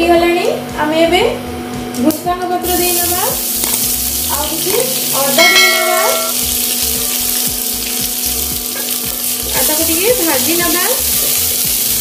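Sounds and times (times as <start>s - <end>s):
food sizzling in hot oil: 2.6s - 12.0s.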